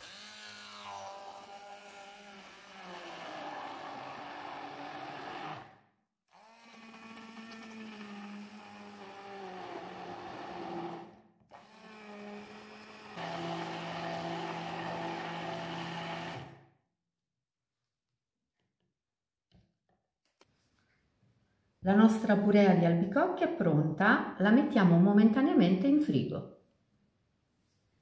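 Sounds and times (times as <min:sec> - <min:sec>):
immersion blender motor: 0:00.0 - 0:16.7.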